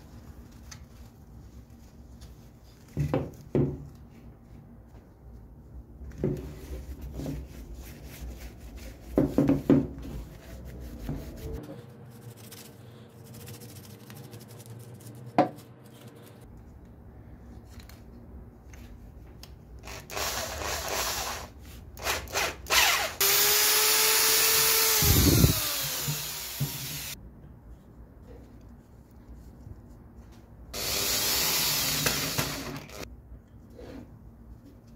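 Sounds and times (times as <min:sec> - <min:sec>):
cordless drill running: 0:19.8 - 0:27.2, 0:30.8 - 0:33.0.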